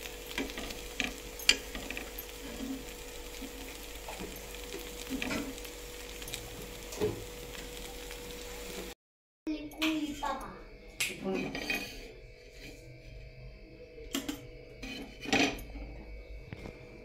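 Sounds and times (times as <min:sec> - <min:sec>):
fish sizzling in a pan: 0:00.0 - 0:09.0
spatula scraping and tapping pan: 0:00.3 - 0:05.6.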